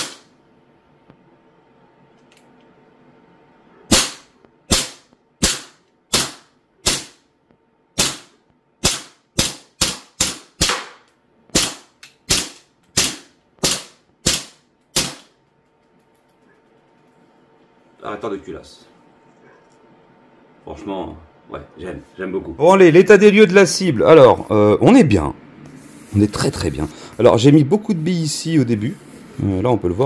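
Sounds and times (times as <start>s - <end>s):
air pistol shots popping: 0.0s - 0.3s, 3.9s - 7.2s, 8.0s - 15.4s.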